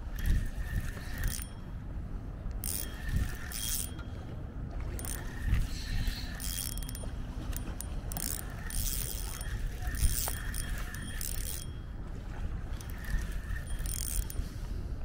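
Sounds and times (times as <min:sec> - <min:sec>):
fishing reel whirring and clicking: 0:00.0 - 0:01.7, 0:02.5 - 0:04.0, 0:04.9 - 0:11.8, 0:12.6 - 0:14.4.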